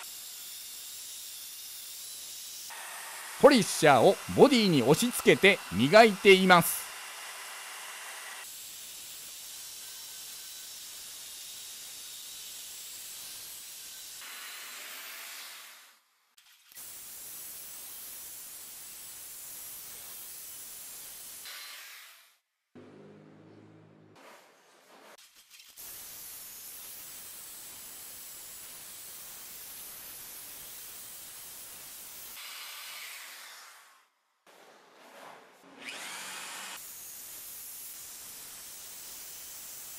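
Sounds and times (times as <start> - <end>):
rotary polisher hissing and whining: 0.0 - 15.0
rotary polisher whirring: 2.7 - 8.5, 35.7 - 36.8.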